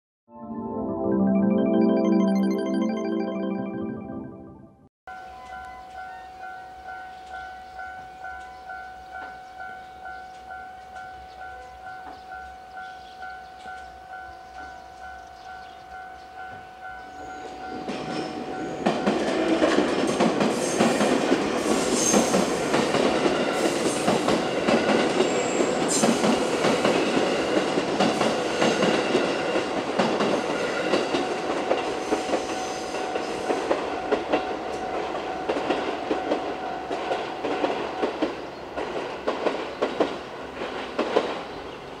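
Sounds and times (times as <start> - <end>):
level-crossing warning bell: 5.1 - 22.4, 28.5 - 37.3.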